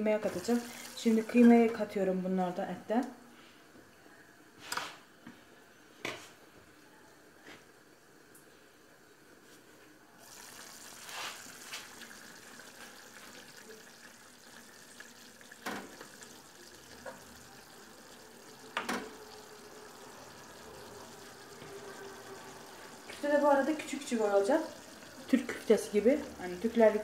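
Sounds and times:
onions sizzling in a pan: 0:00.2 - 0:01.5, 0:10.2 - 0:27.0.

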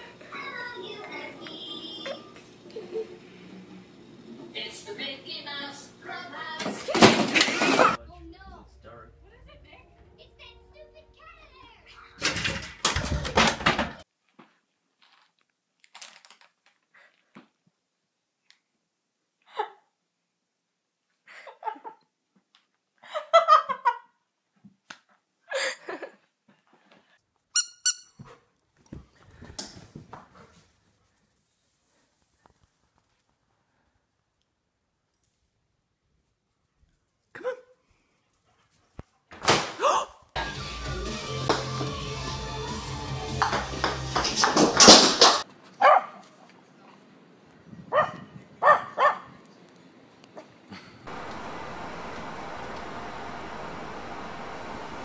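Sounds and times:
music: 0:08.1 - 0:11.6, 0:40.4 - 0:44.8
small dog barking: 0:45.8 - 0:46.2, 0:47.9 - 0:49.4
loud burst of noise: 0:51.1 - 0:55.0.

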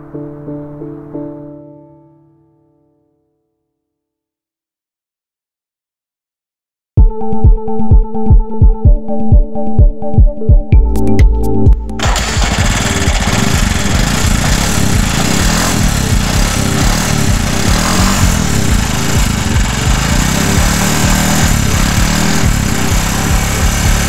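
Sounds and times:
engine exhaust pulses: 0:11.9 - 0:24.0.

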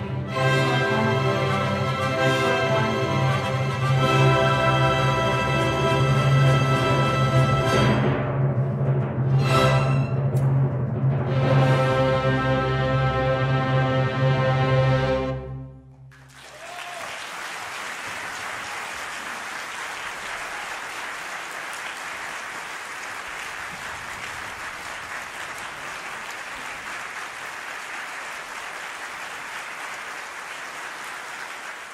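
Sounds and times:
audience applause: 0:16.1 - 0:31.9.

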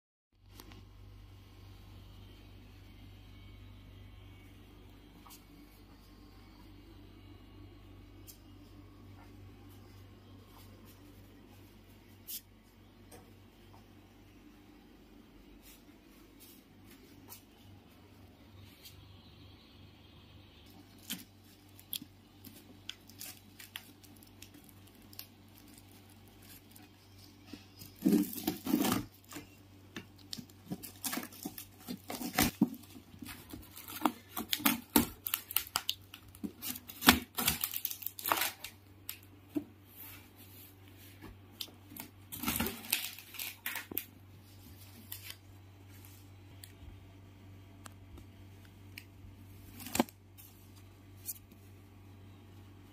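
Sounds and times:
packaging tearing and crinkling: 0:20.9 - 0:26.9, 0:27.8 - 0:29.4, 0:30.2 - 0:39.2, 0:42.0 - 0:44.1.

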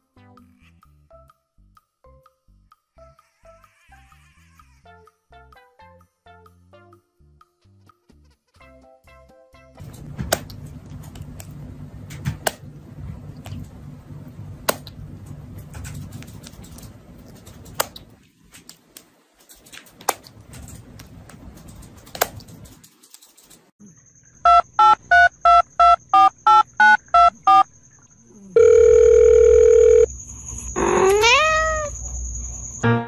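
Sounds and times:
dial tone: 0:24.5 - 0:27.6, 0:28.6 - 0:30.1
phone keypad beeps: 0:24.5 - 0:27.6
cat meowing: 0:30.8 - 0:32.0.

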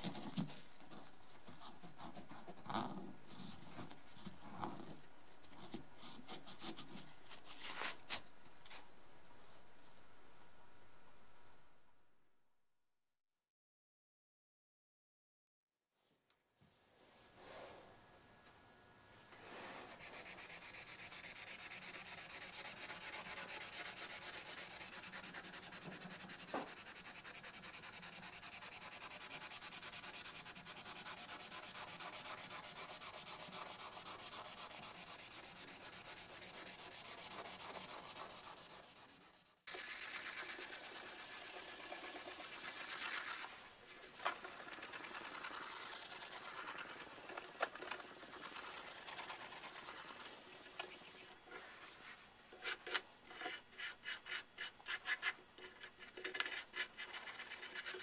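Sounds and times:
scouring pad scrubbing metal: 0:20.0 - 0:51.3.

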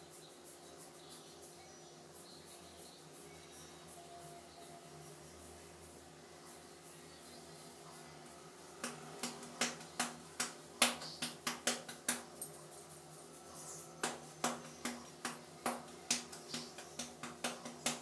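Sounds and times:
fingertips scratching through hair: 0:08.8 - 0:18.0.

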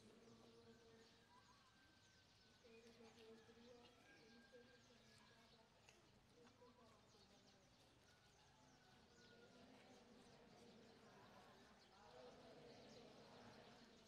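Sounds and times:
distant crowd murmur: 0:00.0 - 0:14.0.

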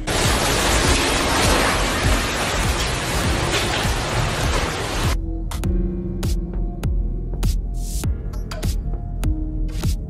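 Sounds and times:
storm wind and rain: 0:00.0 - 0:05.2
music with thudding beat: 0:00.0 - 0:10.0.

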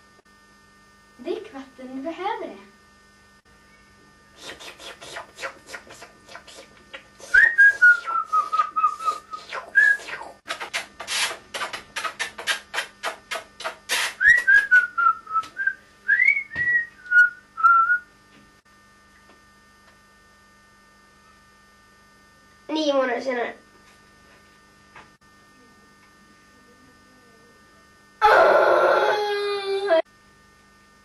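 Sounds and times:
person whistling: 0:07.2 - 0:10.2, 0:14.2 - 0:18.0.

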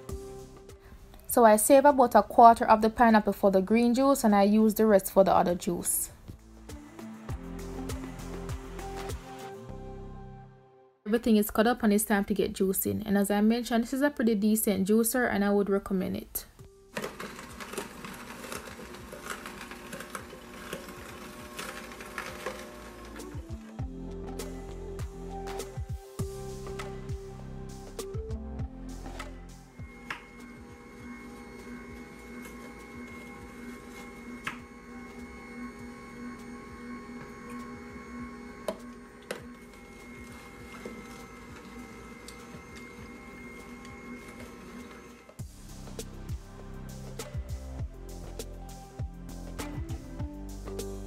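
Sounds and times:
juicer motor hum: 0:05.8 - 0:09.6, 0:16.9 - 0:51.0
vegetables cracking in juicer: 0:16.9 - 0:24.6, 0:29.0 - 0:45.4.

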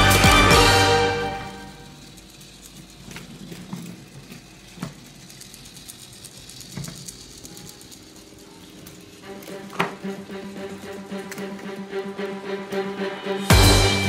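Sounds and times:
wooden toys tapping and knocking: 0:08.8 - 0:10.0.

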